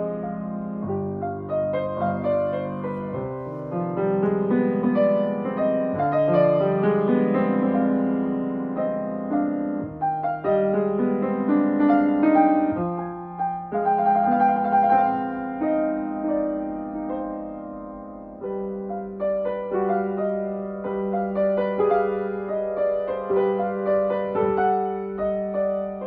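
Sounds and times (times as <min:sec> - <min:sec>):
grand piano melody: 0:00.0 - 0:26.0.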